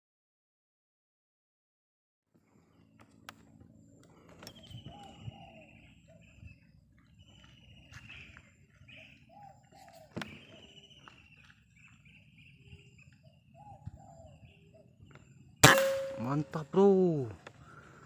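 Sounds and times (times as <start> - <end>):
trilled bird calls: 3.8 - 18.0.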